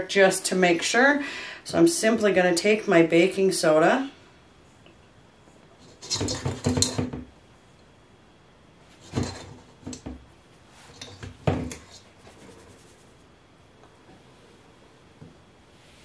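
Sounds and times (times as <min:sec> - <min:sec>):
tub and sieve rattling on bowl: 0:05.8 - 0:07.3, 0:09.0 - 0:10.2.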